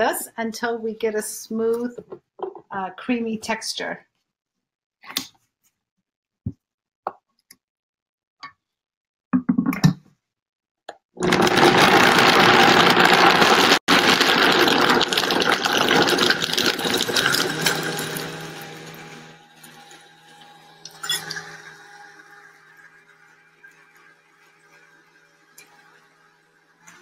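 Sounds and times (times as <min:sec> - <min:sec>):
blender motor running: 0:11.2 - 0:27.0.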